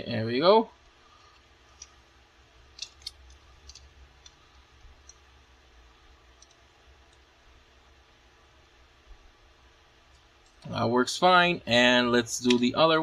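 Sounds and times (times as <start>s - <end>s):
plastic toy parts clicking: 2.7s - 4.4s.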